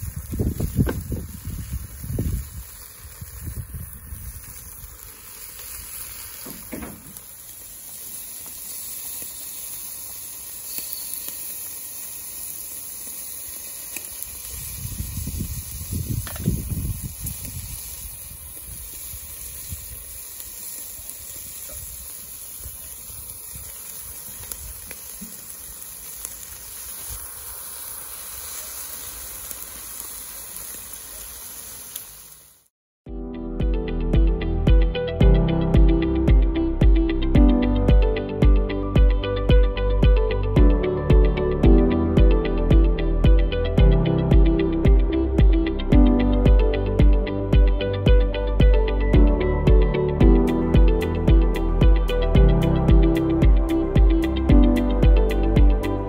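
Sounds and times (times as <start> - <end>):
meat sizzling on a grill: 0.0 - 32.7, 42.2 - 56.0
low rumbles: 33.1 - 56.0.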